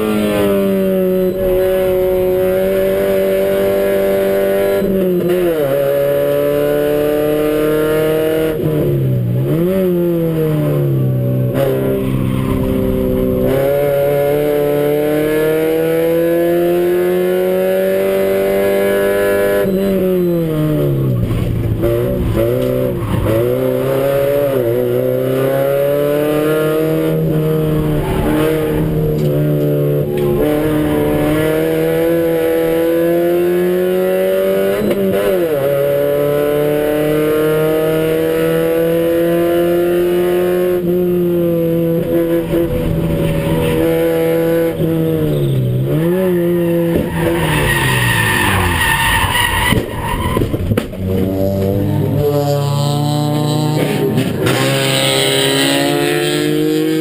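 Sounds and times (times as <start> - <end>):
race car engine at high revs: 0.0 - 57.0.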